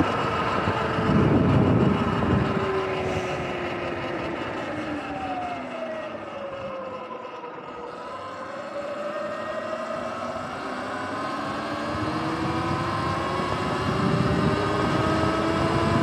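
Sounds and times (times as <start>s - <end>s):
electric motor whining: 0.0s - 5.4s, 7.7s - 16.0s
wind noise: 0.0s - 5.6s, 10.3s - 16.0s.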